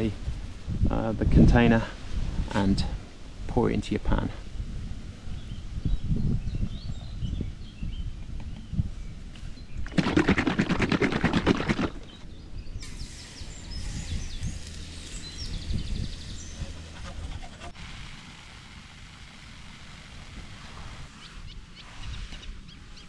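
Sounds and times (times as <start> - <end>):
birds chirping: 5.0 - 10.4, 11.6 - 17.8, 21.0 - 23.0
batter sloshing in plastic bottle: 9.8 - 12.2.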